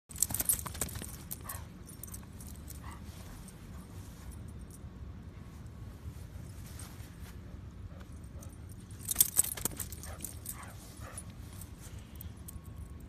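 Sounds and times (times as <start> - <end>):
dog tags jingling: 0.1 - 3.0, 8.2 - 13.0.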